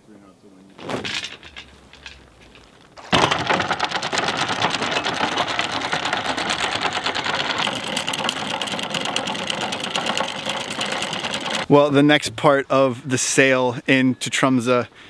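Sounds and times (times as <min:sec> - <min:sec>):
fast mechanical clatter: 0:03.0 - 0:11.7.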